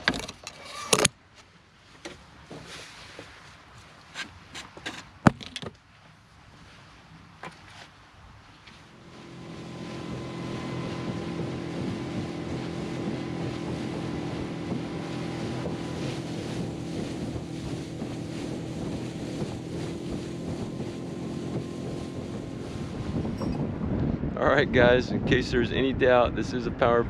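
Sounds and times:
outboard motor running: 8.8 - 24.3
wind on microphone: 9.0 - 27.0.

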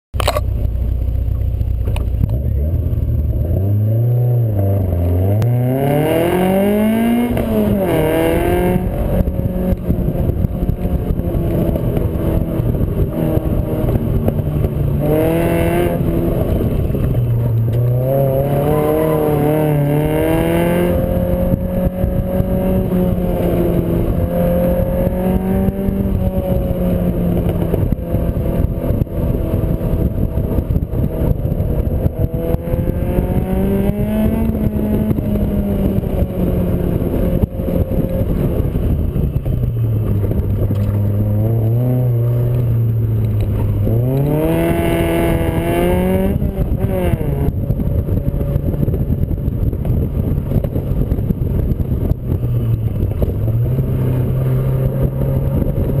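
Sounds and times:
car engine revving: 0.2 - 56.0
wind rushing: 5.4 - 56.0.

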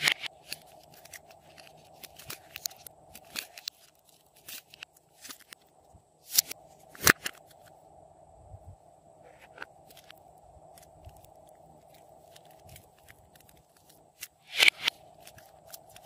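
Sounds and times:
soft handling of clay: 9.2 - 16.0.

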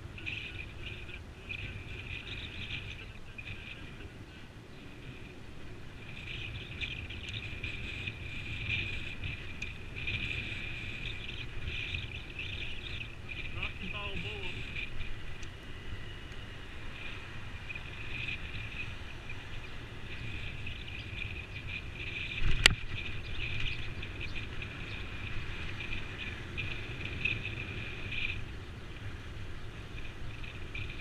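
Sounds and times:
wind and road rumble: 0.0 - 31.0
high-pitched hiss: 7.3 - 16.2.

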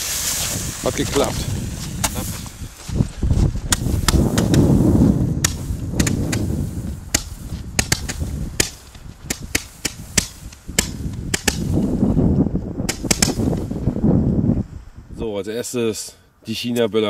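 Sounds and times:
roman candles popping: 3.7 - 13.7.

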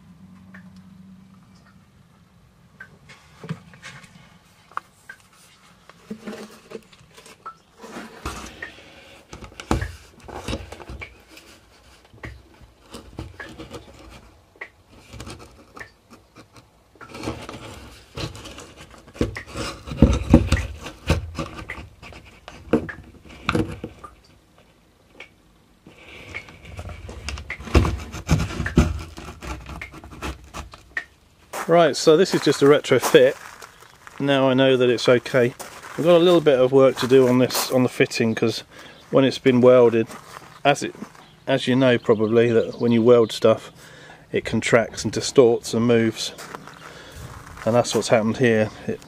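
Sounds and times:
camera scraping against fibreglass: 5.3 - 23.8, 25.9 - 31.0, 31.9 - 41.6, 46.1 - 49.0.

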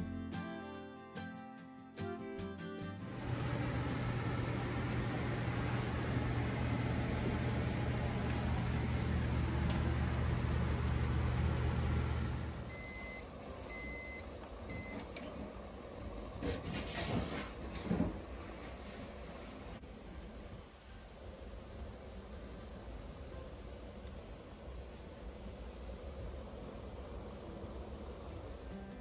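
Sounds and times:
gas burner hissing: 3.1 - 29.0
short electronic beeps: 12.7 - 15.0.

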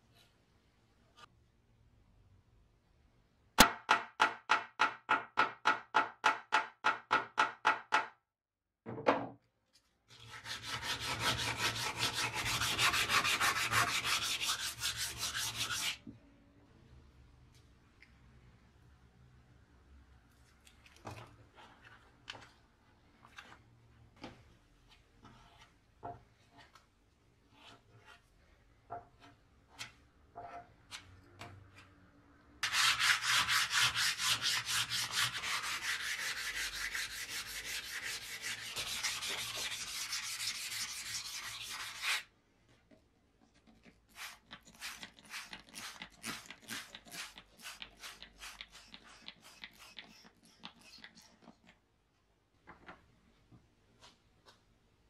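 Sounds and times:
sandpaper sanding strokes: 10.4 - 16.0, 32.6 - 42.2.

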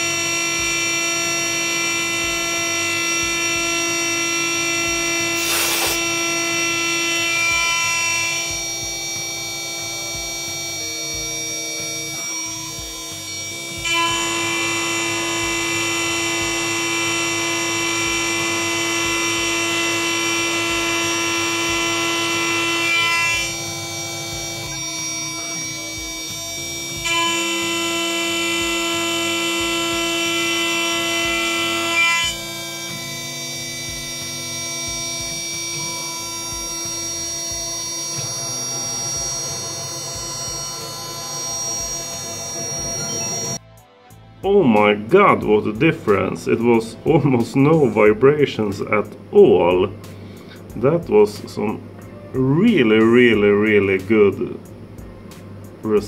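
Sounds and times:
router spindle milling metal: 0.0 - 43.6.

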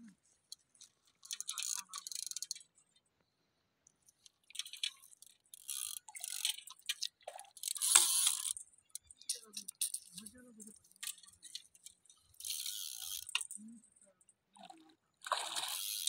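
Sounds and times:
fish splashing in water: 14.6 - 16.0.

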